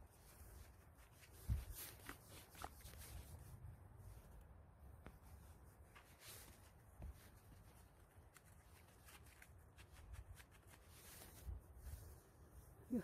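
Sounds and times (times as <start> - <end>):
rustling of pine needles and soil: 0.0 - 13.0.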